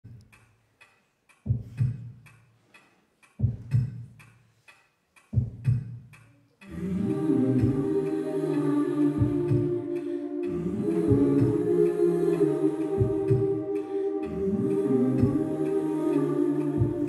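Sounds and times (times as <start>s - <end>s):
clock-like ticks: 0.1s - 17.0s
sustained chord with humming voices: 6.7s - 17.0s.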